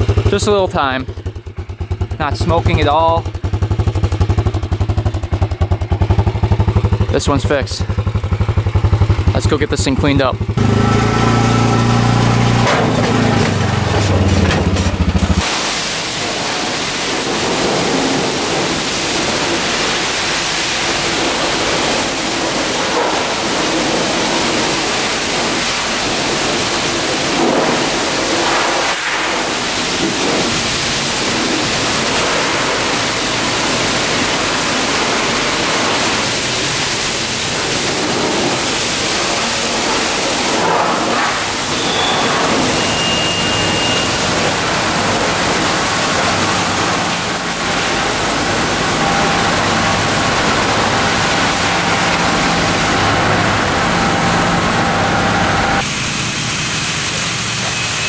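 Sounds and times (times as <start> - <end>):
high-pressure water spray hiss: 13.7 - 54.5, 55.8 - 58.0.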